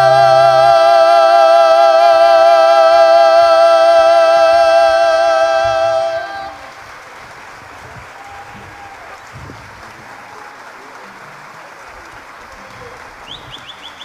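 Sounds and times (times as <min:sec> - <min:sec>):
man and woman singing duet: 0:00.0 - 0:06.7
faint crowd noise: 0:05.3 - 0:14.0.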